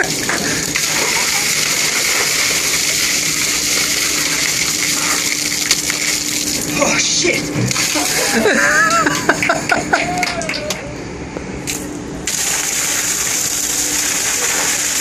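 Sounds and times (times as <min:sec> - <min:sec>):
water pouring from a bucket: 0:00.0 - 0:06.8, 0:07.7 - 0:08.6, 0:12.3 - 0:15.0
water splashing on deck: 0:00.0 - 0:09.6, 0:12.3 - 0:15.0.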